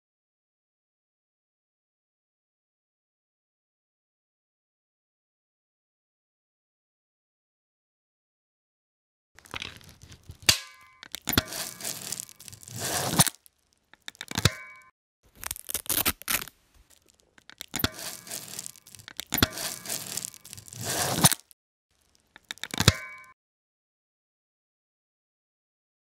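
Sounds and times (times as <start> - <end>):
strap rasping through buckle: 9.4 - 13.4, 15.3 - 21.5.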